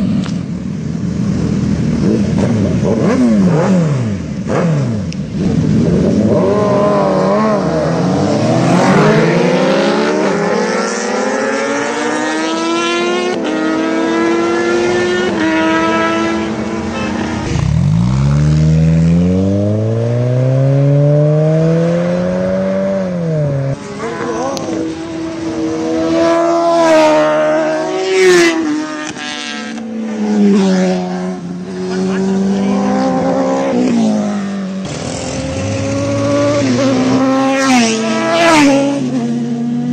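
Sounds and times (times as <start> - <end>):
engines revving and accelerating: 1.4 - 39.9.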